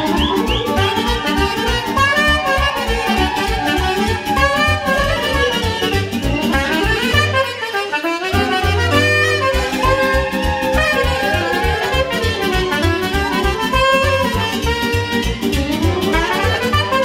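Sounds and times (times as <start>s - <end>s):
bass beat: 0.0s - 7.6s, 8.4s - 17.0s
soprano saxophone melody: 0.0s - 17.0s
held bass note: 8.4s - 17.0s.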